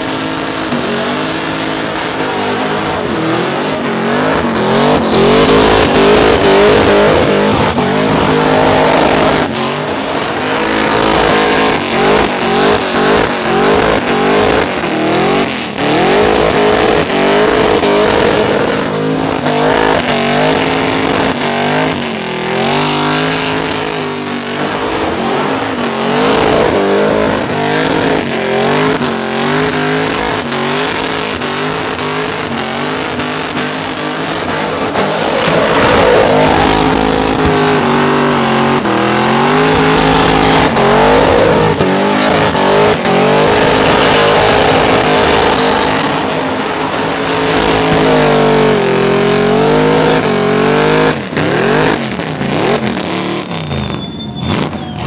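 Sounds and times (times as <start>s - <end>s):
car engine revving: 0.0s - 55.0s
spinning tyres hissing: 31.3s - 48.1s.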